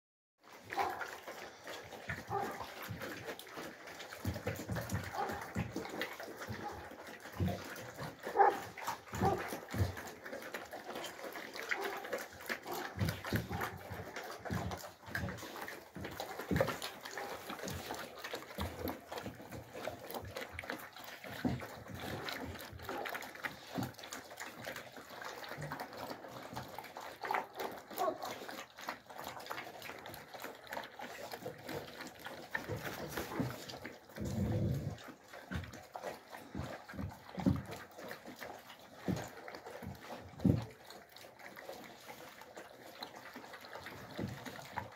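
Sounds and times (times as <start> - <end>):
puppies chewing and smacking: 0.4 - 44.9.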